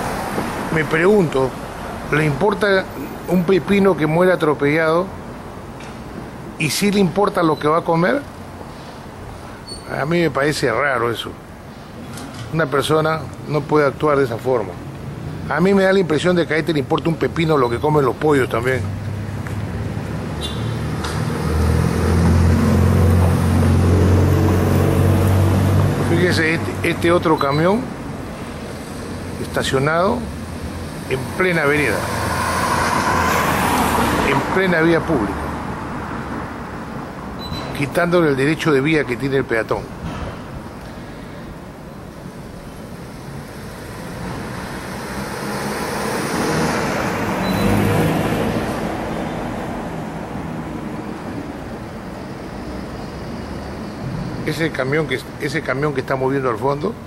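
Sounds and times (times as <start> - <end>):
vehicle engine passing by: 18.6 - 27.2, 30.2 - 36.7, 43.3 - 51.0.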